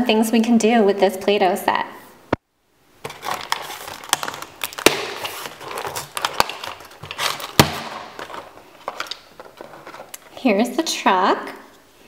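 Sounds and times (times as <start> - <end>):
plastic snapping: 3.0 - 10.3
plastic blister pack crinkling: 3.0 - 10.4.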